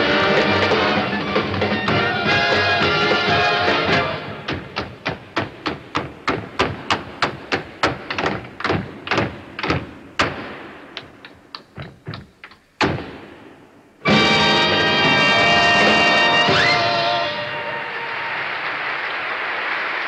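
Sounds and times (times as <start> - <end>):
tap shoes on stage floor: 0.6 - 2.7, 4.5 - 13.1
band chord: 14.0 - 17.7.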